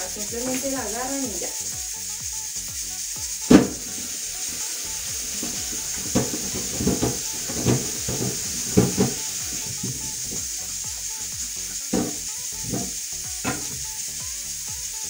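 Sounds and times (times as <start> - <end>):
tap running into a sink: 3.5 - 4.1, 5.1 - 10.6, 11.7 - 14.0
knocks and clatters: 5.4 - 10.5, 11.9 - 13.8.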